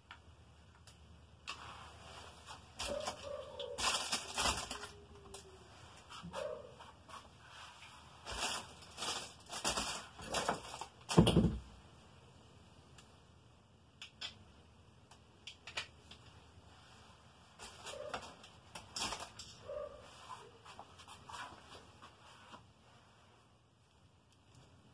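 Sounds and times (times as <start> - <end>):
plastic bag crinkling: 2.5 - 5.5, 8.2 - 11.5, 17.6 - 19.6.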